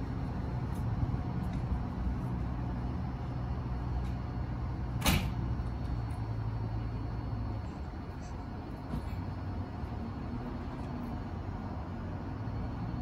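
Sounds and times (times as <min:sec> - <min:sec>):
electric train humming: 0:00.0 - 0:13.0.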